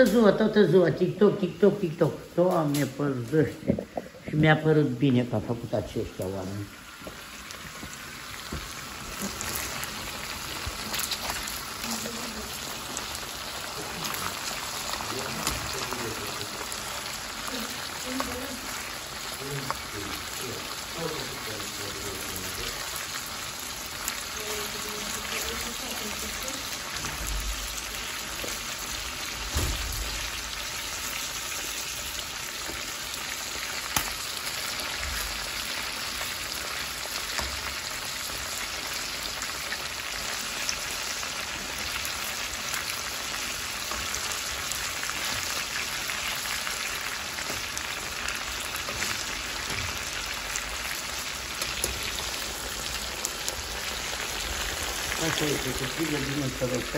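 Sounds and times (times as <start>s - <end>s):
food sizzling in hot oil: 0.0s - 4.2s, 4.9s - 56.9s
oil popping: 5.8s - 21.2s.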